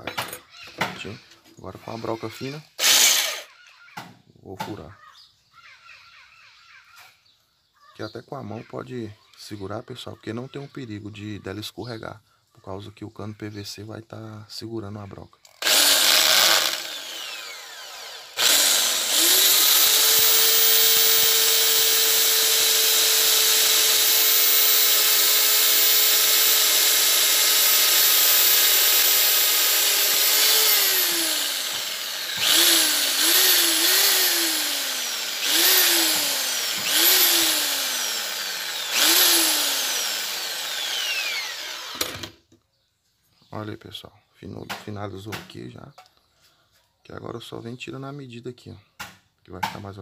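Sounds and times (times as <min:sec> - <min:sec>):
electric drill whining: 0:01.9 - 0:03.5, 0:15.5 - 0:42.4.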